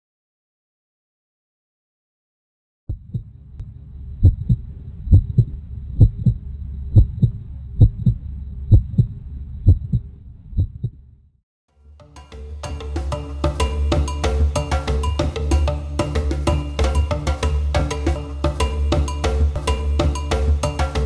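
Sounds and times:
heartbeat thumps: 0:02.9 - 0:11.0
low hum: 0:02.9 - 0:11.4.

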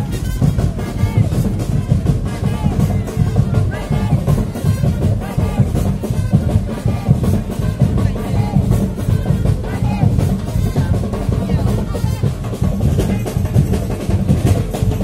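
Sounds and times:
carnival parade music: 0:00.0 - 0:15.0
dense steady drumming: 0:00.0 - 0:15.0.

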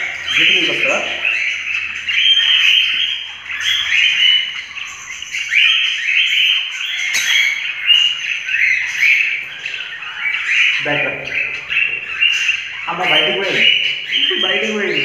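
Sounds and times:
small parrots chirping: 0:00.0 - 0:15.0.

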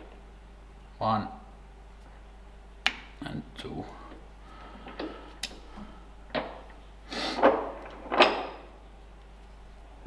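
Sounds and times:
metal clicks and clunks: 0:06.3 - 0:06.8, 0:07.4 - 0:08.8.

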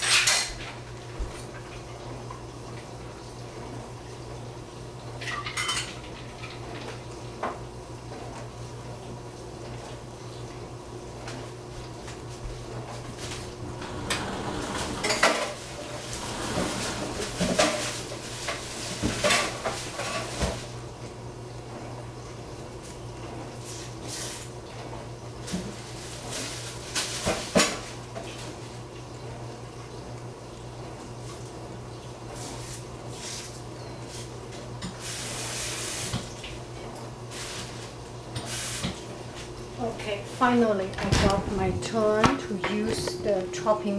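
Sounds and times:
dishes and utensils clattering: 0:00.0 - 0:00.7, 0:05.2 - 0:07.0, 0:13.2 - 0:20.6
steady low hum: 0:10.9 - 0:19.8, 0:39.5 - 0:43.9
water gushing: 0:13.0 - 0:20.2, 0:35.0 - 0:36.6.

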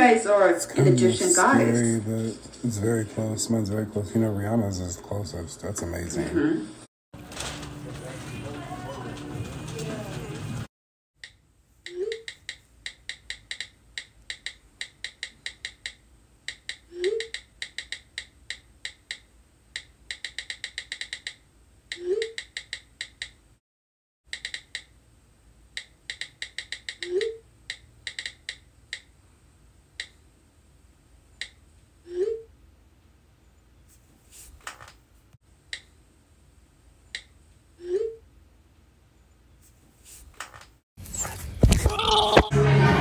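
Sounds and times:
phone keyboard typing clicks: 0:12.1 - 0:21.4, 0:24.3 - 0:24.9, 0:25.8 - 0:29.1.

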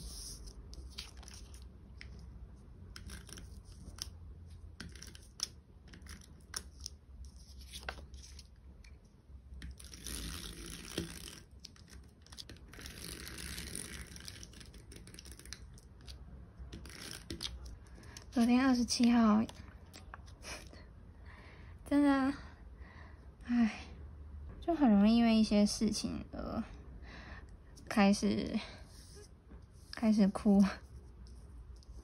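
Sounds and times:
paper handling: 0:00.1 - 0:02.2, 0:04.8 - 0:08.5
glue tape runner on paper: 0:09.6 - 0:15.6.

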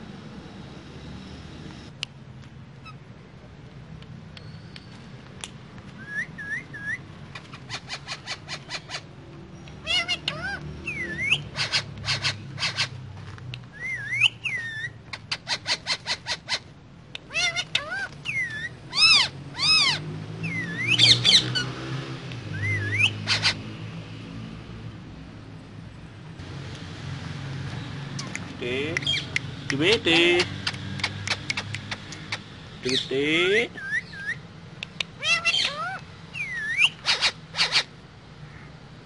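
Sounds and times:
parakeet whistles: 0:06.0 - 0:07.0, 0:10.0 - 0:12.9, 0:13.7 - 0:15.0, 0:17.8 - 0:21.5, 0:22.5 - 0:23.6, 0:35.2 - 0:37.8
loud harsh parrot calls: 0:06.0 - 0:09.2, 0:09.8 - 0:13.0, 0:13.8 - 0:21.7, 0:22.5 - 0:23.7, 0:33.7 - 0:34.4, 0:35.2 - 0:38.8
parakeets chirping: 0:06.0 - 0:13.1, 0:13.7 - 0:21.8, 0:22.4 - 0:24.1, 0:27.4 - 0:38.8.

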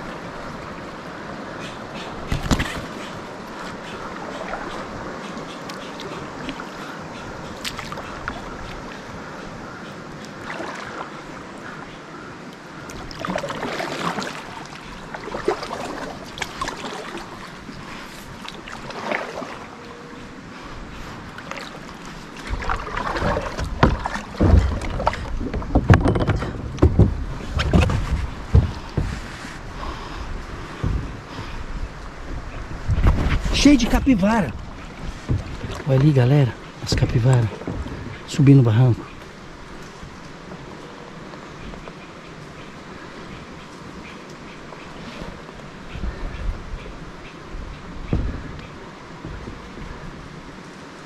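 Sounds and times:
paddle strokes splashing: 0:00.0 - 0:51.0
wind gusts on microphone: 0:12.4 - 0:51.0.

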